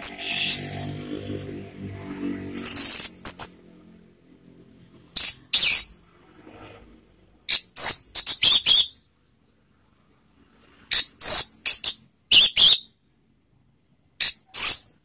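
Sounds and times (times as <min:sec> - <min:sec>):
thrush calling in high bursts: 0:00.0 - 0:00.8, 0:02.6 - 0:03.5.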